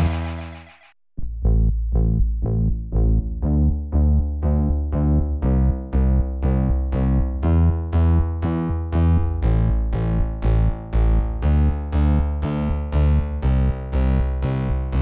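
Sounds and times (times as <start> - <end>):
electronic music with heavy bass: 0.0 - 0.9, 4.5 - 15.0.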